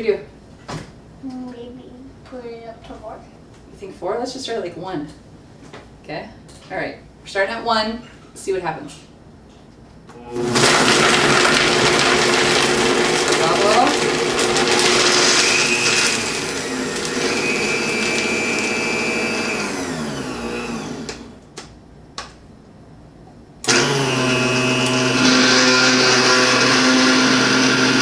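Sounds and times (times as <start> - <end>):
blender motor running: 10.2 - 21.4, 23.7 - 28.0.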